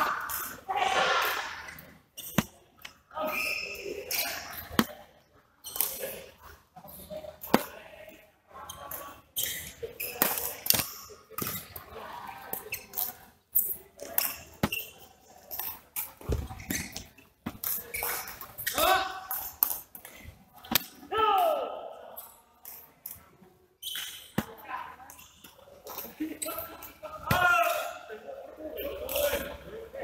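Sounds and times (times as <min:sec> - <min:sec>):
shoes squeaking on court: 0:01.3 - 0:07.7, 0:08.6 - 0:20.8, 0:22.2 - 0:28.0
rackets striking shuttlecock: 0:02.2 - 0:02.6, 0:09.4 - 0:11.6, 0:20.6 - 0:21.0.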